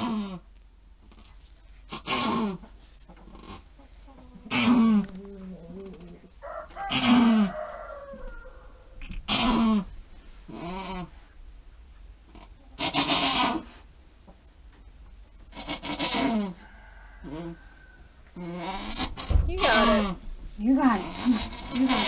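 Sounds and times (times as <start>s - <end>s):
goat bleating: 1.9s - 2.7s, 3.3s - 7.6s, 9.0s - 9.9s, 12.3s - 13.7s, 15.5s - 16.6s, 18.4s - 20.2s, 20.8s - 22.0s.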